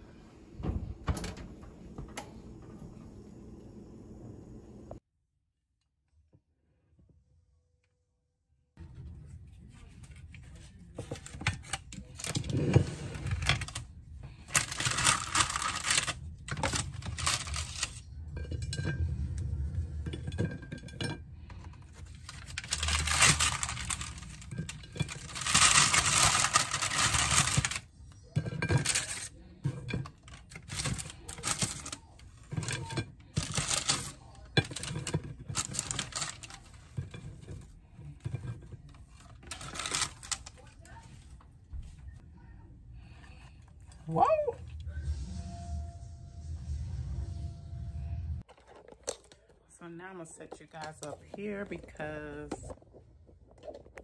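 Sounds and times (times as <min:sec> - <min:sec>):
paper rustling: 0:09.6 - 0:18.0, 0:21.9 - 0:27.9, 0:30.4 - 0:37.0, 0:39.0 - 0:41.4
cookies scraping on tray: 0:10.8 - 0:41.0.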